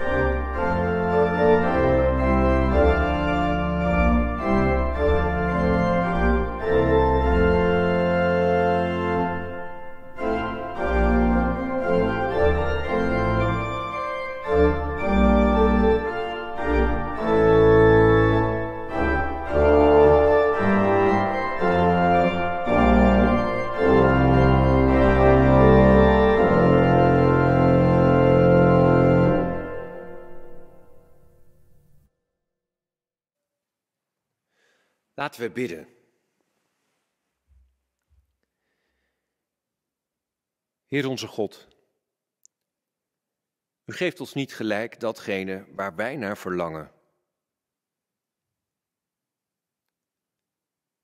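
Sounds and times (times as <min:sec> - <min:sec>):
organ playing a hymn: 0:00.0 - 0:31.7.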